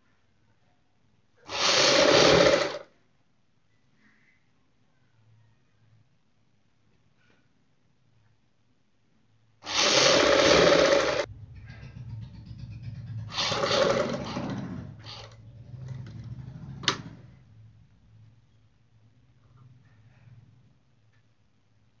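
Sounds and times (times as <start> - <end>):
sewing machine stitching: 1.5 - 2.9, 9.6 - 17.4.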